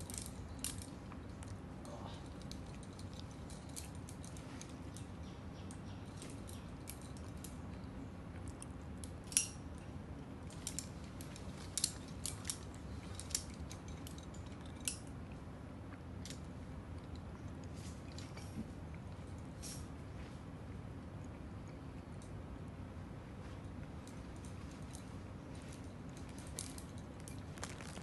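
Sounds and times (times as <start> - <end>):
metallic clicks of climbing gear: 0.0 - 7.7, 8.6 - 9.6, 10.4 - 15.1, 24.0 - 28.0
steady low background hum: 0.0 - 28.0.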